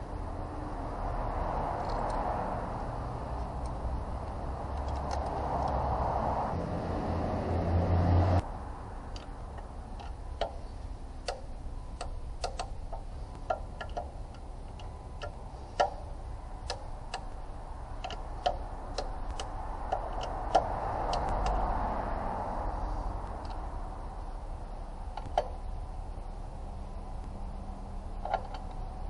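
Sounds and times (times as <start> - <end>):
ratchet wrench clicking: 11.2 - 17.4, 18.0 - 21.7.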